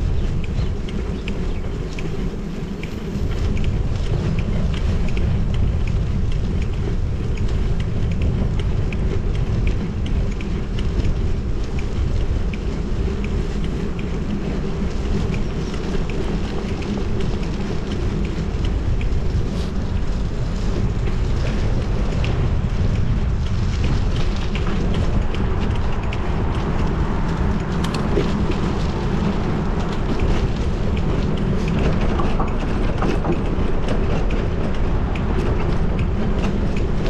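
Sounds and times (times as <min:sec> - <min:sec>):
wind buffeting microphone: 0:00.0 - 0:37.0.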